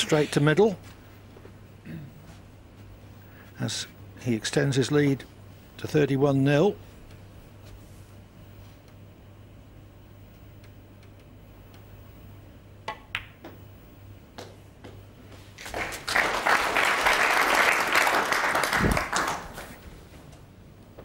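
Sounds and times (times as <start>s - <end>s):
snooker balls clicking: 12.8s - 13.7s
audience applause: 15.6s - 19.8s.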